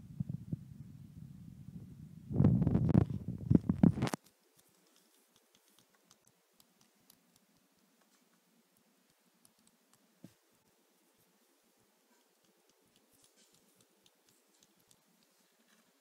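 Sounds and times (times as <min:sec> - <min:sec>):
handheld microphone handling rumble: 0:00.0 - 0:04.2.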